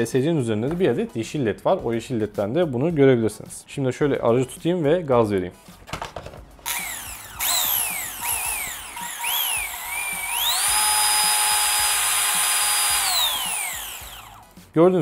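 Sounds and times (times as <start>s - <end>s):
toy car electric motor whining: 6.7s - 14.4s.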